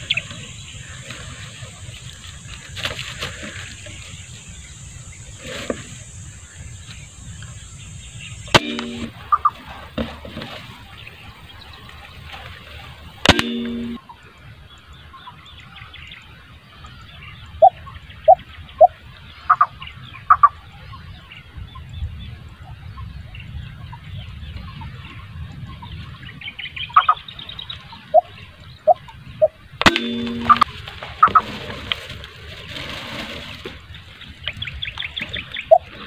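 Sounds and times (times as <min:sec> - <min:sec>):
bird calls: 0:00.0 - 0:36.0
airgun shots: 0:08.5 - 0:09.3, 0:13.2 - 0:14.0, 0:29.8 - 0:30.7.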